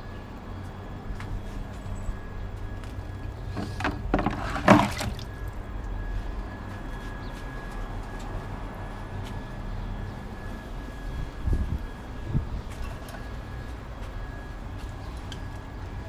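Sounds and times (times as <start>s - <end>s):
low background hum: 0.0s - 16.0s
water sloshing in plastic bucket: 3.5s - 5.5s.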